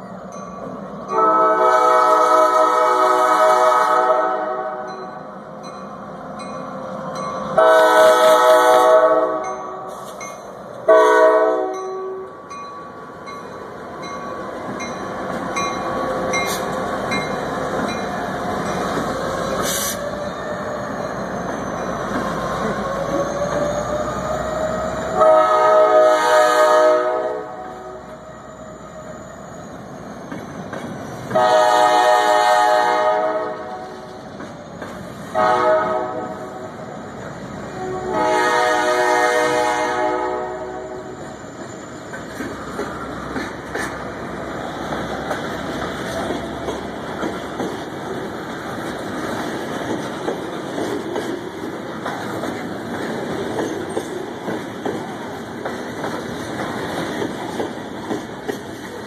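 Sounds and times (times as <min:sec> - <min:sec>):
train rumbling past: 0:00.0 - 0:59.0
locomotive air horn blasts: 0:01.1 - 0:04.9, 0:07.6 - 0:10.1, 0:10.9 - 0:12.3, 0:25.2 - 0:28.0, 0:31.4 - 0:33.9, 0:35.3 - 0:36.6, 0:37.7 - 0:41.2.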